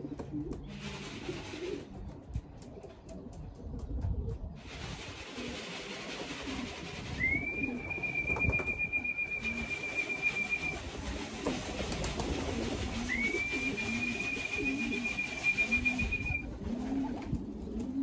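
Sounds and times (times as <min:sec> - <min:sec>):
pigeons cooing: 0:00.0 - 0:18.0
rising call whistle: 0:07.2 - 0:10.8, 0:13.1 - 0:16.4.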